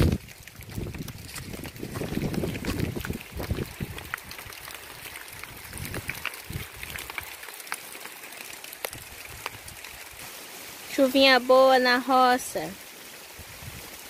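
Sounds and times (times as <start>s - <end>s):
wind rumble on microphone: 0.0s - 7.3s, 13.4s - 14.0s
raindrops ticking on leaves: 0.0s - 14.0s.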